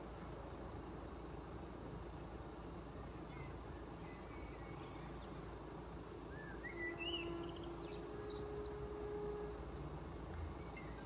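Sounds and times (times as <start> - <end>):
birds chirping: 6.4 - 9.4.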